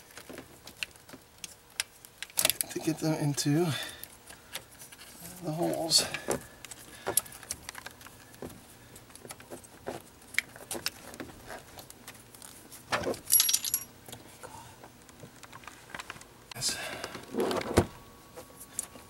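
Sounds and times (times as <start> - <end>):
ringing metal clinks: 13.3 - 13.9.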